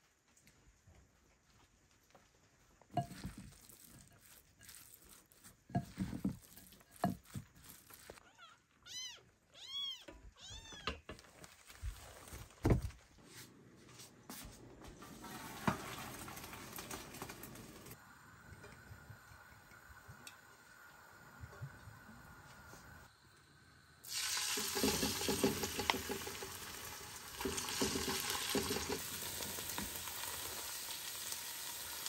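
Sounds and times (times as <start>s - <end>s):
cat meowing: 8.2s - 11.0s.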